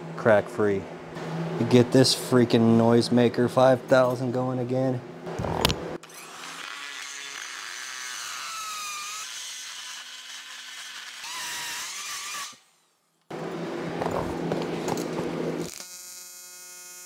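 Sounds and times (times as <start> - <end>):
power grinder grinding metal: 5.4 - 12.6.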